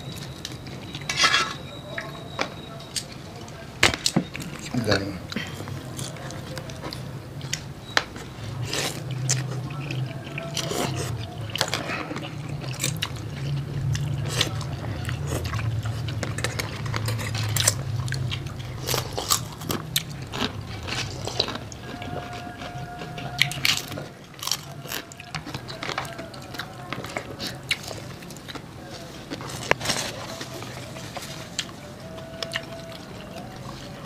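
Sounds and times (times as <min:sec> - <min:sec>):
chewing: 0:00.0 - 0:34.0
steady low hum: 0:02.9 - 0:25.8.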